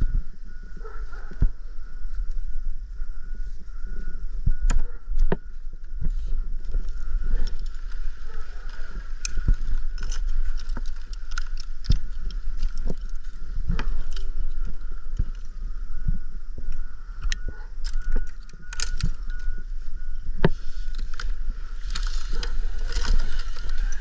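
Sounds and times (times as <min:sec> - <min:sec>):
wind rumbling on microphone: 0:00.0 - 0:24.0
carabiner clinking: 0:06.8 - 0:15.5, 0:17.2 - 0:19.6, 0:20.8 - 0:24.0.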